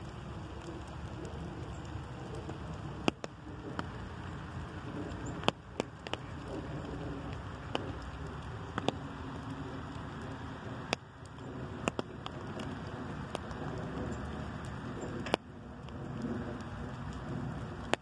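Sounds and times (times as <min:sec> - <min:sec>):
light rain falling: 0:00.0 - 0:18.0
drops tapping on umbrella: 0:05.0 - 0:09.0.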